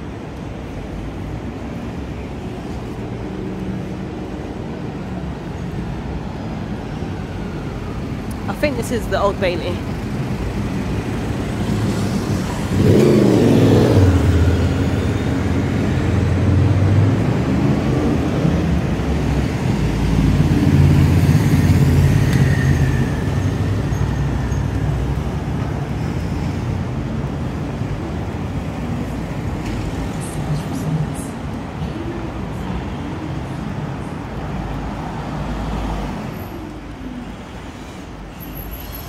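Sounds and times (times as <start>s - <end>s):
road traffic: 0.0s - 39.0s
vehicle engine: 7.6s - 39.0s.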